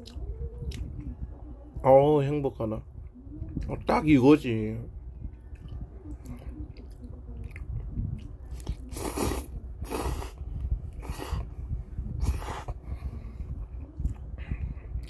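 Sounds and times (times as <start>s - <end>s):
chewing: 5.3s - 10.1s
person slurping noodles: 8.8s - 10.4s, 11.0s - 11.5s, 12.2s - 12.8s.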